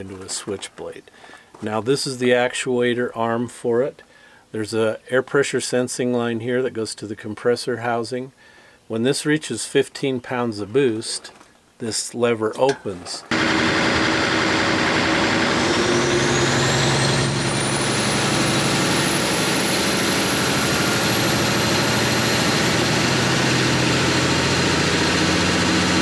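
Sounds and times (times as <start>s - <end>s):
diesel engine revving: 13.3s - 26.0s
turbocharger whine: 13.3s - 26.0s.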